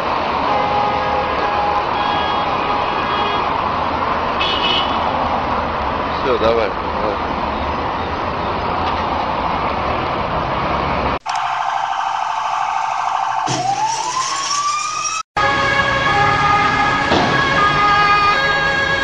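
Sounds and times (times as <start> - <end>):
road traffic noise: 0.0 - 19.0
emergency vehicle siren: 11.2 - 19.0.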